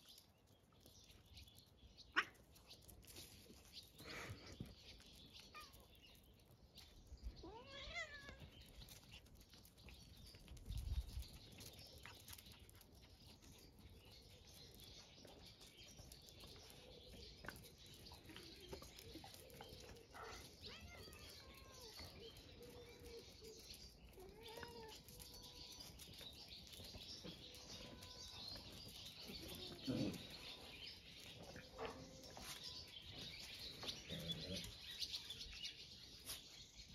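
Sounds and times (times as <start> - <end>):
cat meowing: 7.4 - 8.4.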